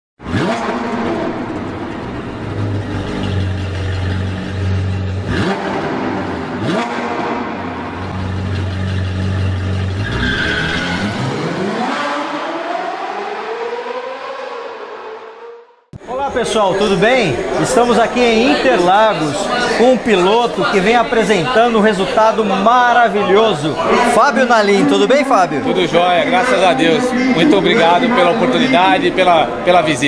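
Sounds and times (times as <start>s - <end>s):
sports car engine revving: 0.2s - 15.8s
low engine rumble: 0.8s - 10.1s.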